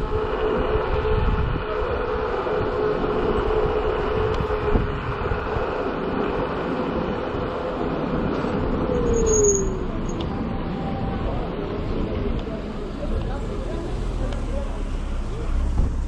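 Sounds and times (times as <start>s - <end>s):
road noise: 0.0s - 16.0s
high squeal: 8.8s - 11.4s.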